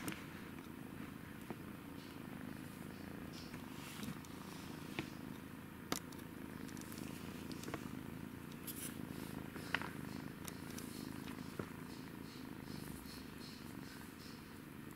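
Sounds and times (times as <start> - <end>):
kitten purring: 0.0 - 14.9.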